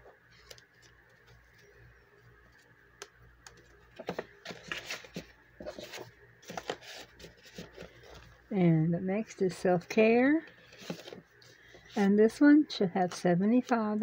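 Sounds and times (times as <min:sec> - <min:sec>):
banknotes rustling: 0:03.9 - 0:08.3, 0:10.5 - 0:12.3.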